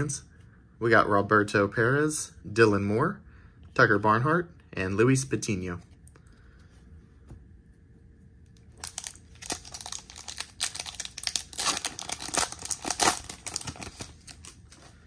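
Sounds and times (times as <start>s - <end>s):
foil wrapper crinkling and tearing: 8.7s - 15.0s.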